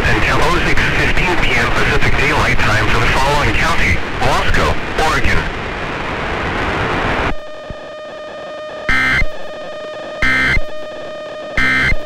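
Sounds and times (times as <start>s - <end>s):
static hiss: 0.0s - 12.0s
loud data bursts: 7.4s - 12.0s.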